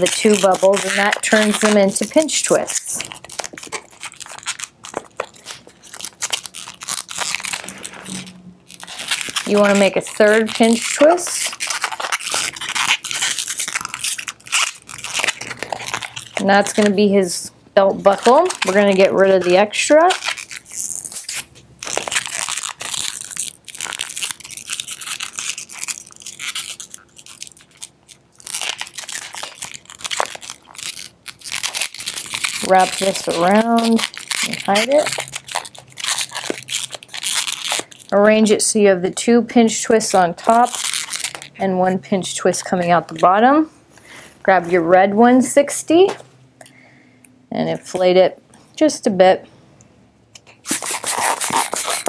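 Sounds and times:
balloon being twisted: 0.0s - 16.9s, 18.0s - 38.2s, 40.1s - 41.5s, 50.6s - 52.0s.

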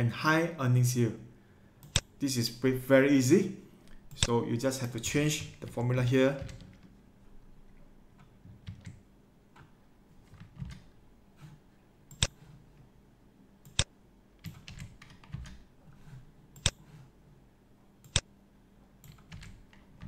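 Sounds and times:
keyboard typing: 5.3s - 6.9s, 8.2s - 12.6s, 13.6s - 15.7s, 19.0s - 20.0s
sharp keyboard clicks: 10.3s - 10.9s, 13.6s - 15.7s, 19.0s - 20.0s.

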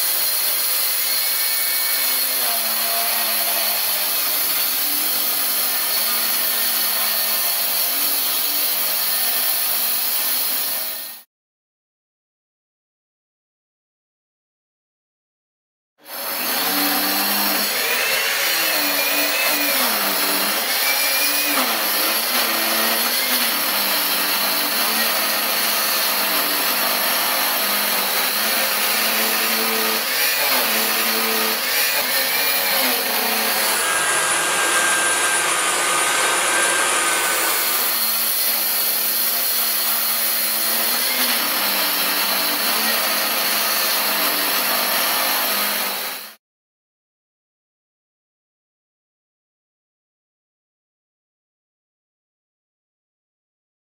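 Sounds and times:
wall chaser grinding brick: 0.0s - 11.2s, 16.0s - 46.3s.

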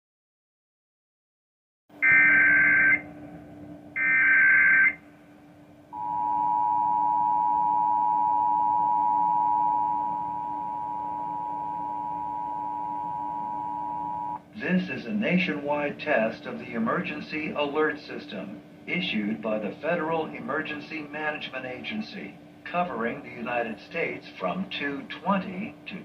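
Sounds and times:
two-tone attention signal: 2.0s - 3.1s, 4.0s - 5.0s, 6.0s - 14.4s.

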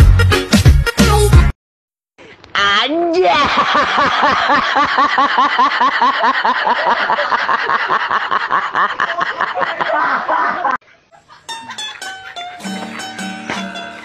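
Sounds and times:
person cackling with laughter: 3.2s - 12.9s
plucked music: 11.5s - 14.0s.

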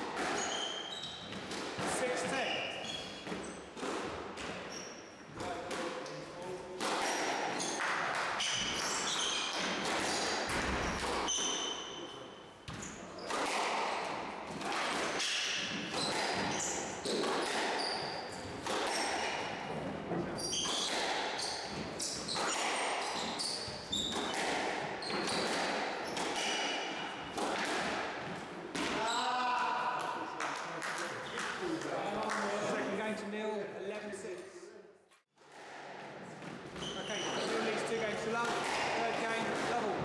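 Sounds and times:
squash ball hitting rackets and walls: 0.0s - 29.3s, 35.4s - 40.0s
shoes squeaking on wooden floor: 36.7s - 38.0s.

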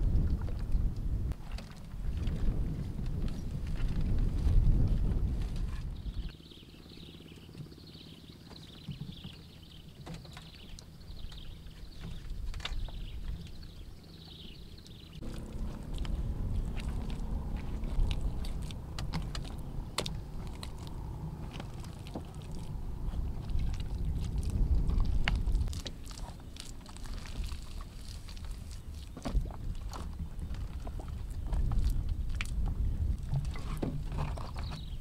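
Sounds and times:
steady low rumble: 0.0s - 1.4s, 2.0s - 8.2s, 11.0s - 35.0s
tarp crinkling: 15.2s - 32.2s
wet mud squelching: 15.2s - 34.9s.

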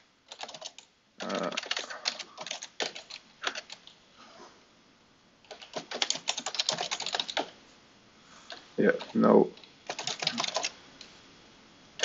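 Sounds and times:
typing on computer keyboard: 0.3s - 3.9s, 5.5s - 7.5s, 9.0s - 10.8s.

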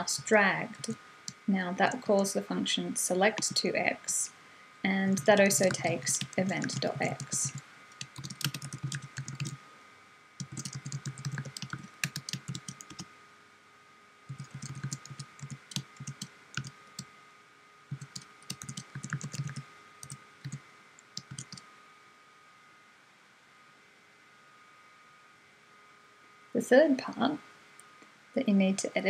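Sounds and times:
computer keyboard typing: 0.0s - 1.4s, 3.3s - 3.6s, 5.2s - 9.6s, 10.4s - 13.0s, 14.3s - 17.1s, 17.9s - 21.6s
faint steady high hum: 0.0s - 29.0s.

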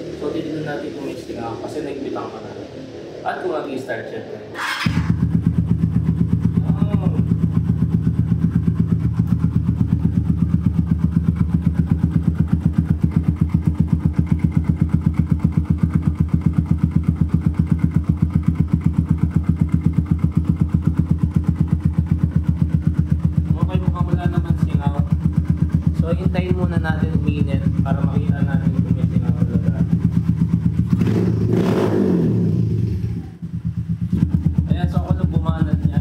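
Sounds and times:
motorcycle engine idling: 4.5s - 36.0s.

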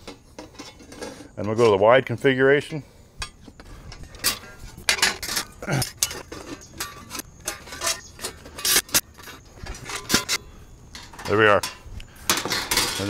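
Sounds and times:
metal panels clanking together: 4.0s - 10.4s, 11.0s - 13.0s.

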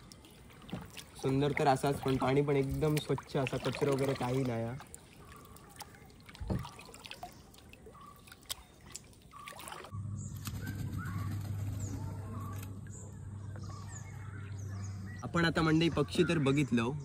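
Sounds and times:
kayak paddle dipping: 0.0s - 10.0s
water trickling: 0.0s - 10.0s.

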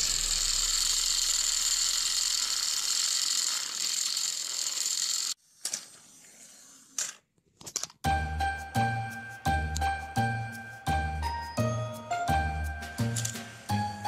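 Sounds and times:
toy train motors whirring: 0.0s - 7.9s, 13.1s - 13.7s.

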